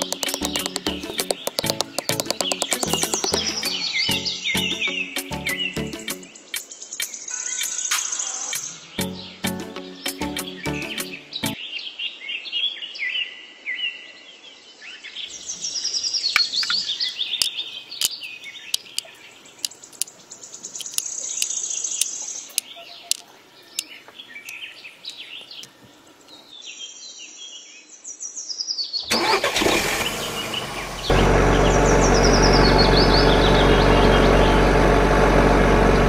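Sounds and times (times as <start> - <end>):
toy bricks clicking: 0.0 - 3.8, 16.3 - 25.7
birds chirping: 0.0 - 11.6, 15.2 - 26.8, 29.1 - 34.8.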